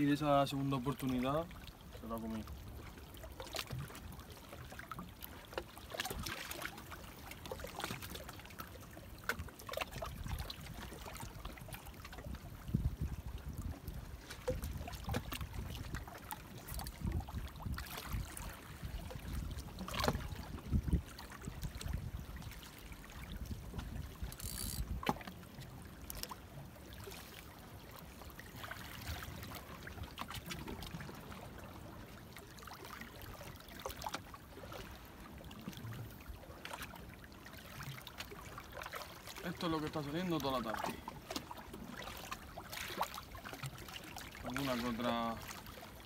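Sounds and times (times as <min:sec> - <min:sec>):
seawater lapping against rocks: 0:00.0 - 0:46.0.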